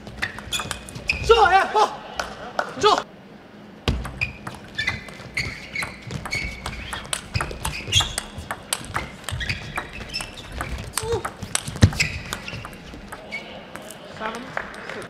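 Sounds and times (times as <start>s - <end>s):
shoes squeaking on floor: 0.0s - 1.6s, 3.9s - 15.0s
table tennis ball clicking: 4.0s - 15.0s.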